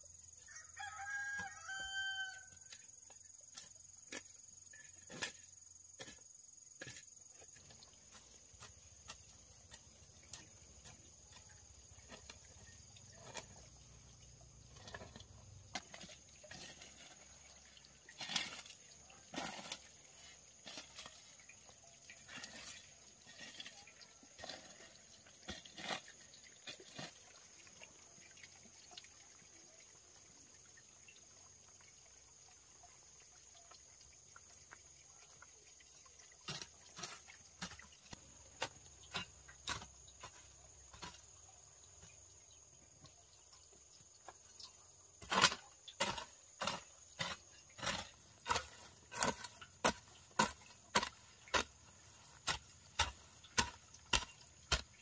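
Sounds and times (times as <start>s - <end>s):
chopping strikes: 52.4s - 54.9s.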